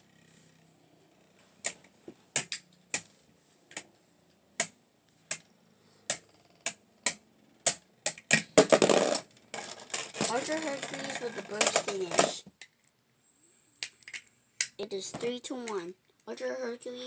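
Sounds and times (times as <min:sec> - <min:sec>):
sharp plastic clacks: 0:06.1 - 0:13.0.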